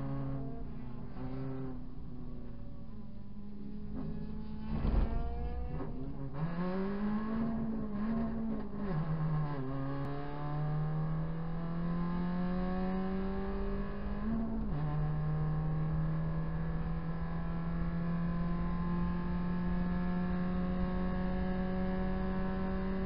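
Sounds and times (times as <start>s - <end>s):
race car engine revving: 3.9s - 16.6s.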